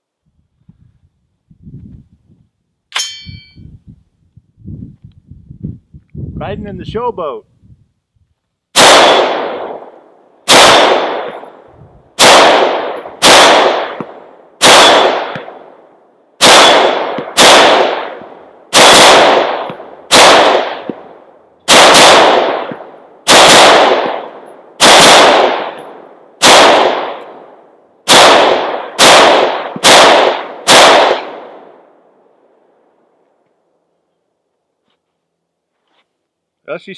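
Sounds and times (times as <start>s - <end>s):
rifle shots with echo: 8.7s - 32.3s.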